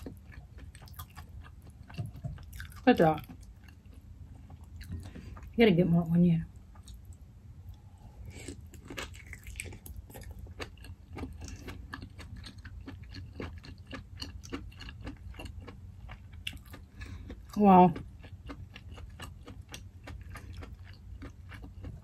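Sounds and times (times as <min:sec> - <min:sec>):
wet chewing: 0:00.0 - 0:05.5, 0:06.7 - 0:22.0
low steady hum: 0:00.0 - 0:22.0.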